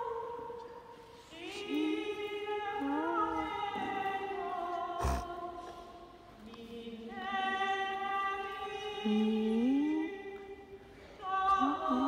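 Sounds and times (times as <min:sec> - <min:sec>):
voices singing a hymn: 0:00.0 - 0:09.5.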